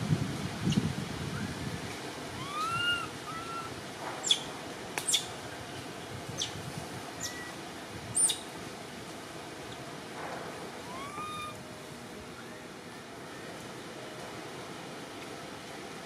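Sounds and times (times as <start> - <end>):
baby monkey whistle-like cries: 2.4 - 4.4, 7.2 - 7.6, 10.8 - 11.6
high monkey chirps: 2.4 - 5.3, 7.2 - 7.6, 8.2 - 8.5, 10.8 - 11.6.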